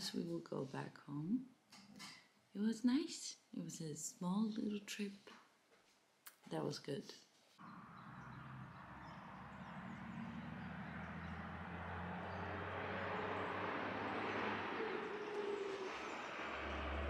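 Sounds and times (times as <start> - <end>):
distant vehicle driving past: 7.6 - 17.0.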